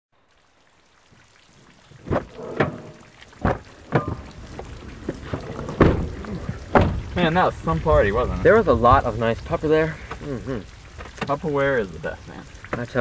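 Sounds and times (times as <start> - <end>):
knocks and thumps inside car: 3.4 - 4.6, 5.2 - 7.1.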